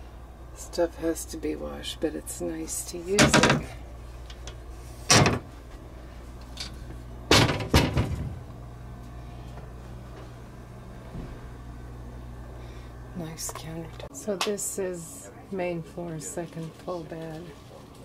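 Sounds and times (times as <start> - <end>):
steady low hum: 0.0 - 18.0
cabinet doors knocking shut: 5.1 - 5.4, 7.3 - 8.4.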